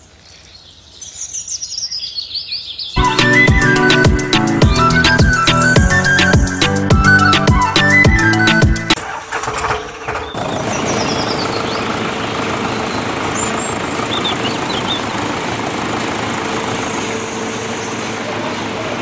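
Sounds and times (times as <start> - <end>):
background music: 3.0 - 9.0.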